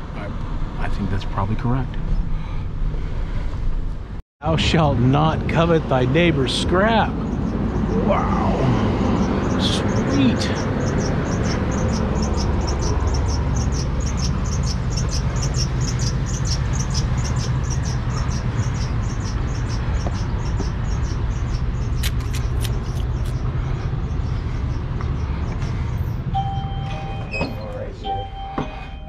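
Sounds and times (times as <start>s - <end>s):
sharp clicks: 22.0s - 23.4s.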